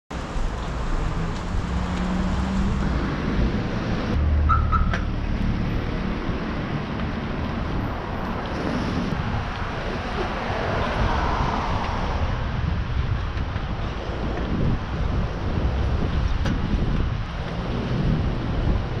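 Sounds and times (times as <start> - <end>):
low rumble of traffic: 0.1 - 19.0
short high beeps: 4.5 - 5.0
wind on microphone: 5.5 - 19.0.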